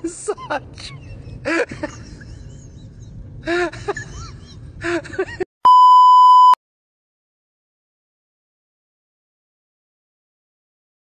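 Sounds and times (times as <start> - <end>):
loud steady test tone beep: 5.6 - 6.6.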